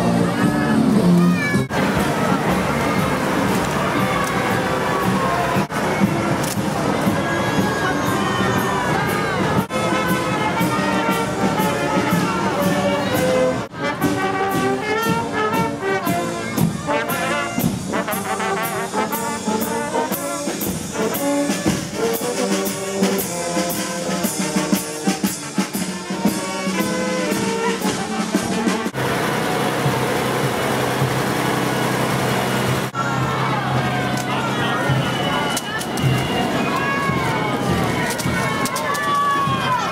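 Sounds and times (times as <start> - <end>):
crowd noise: 0.0 - 39.9
marching brass band playing: 0.0 - 39.9
tractor engine running: 1.7 - 5.7, 29.0 - 33.0.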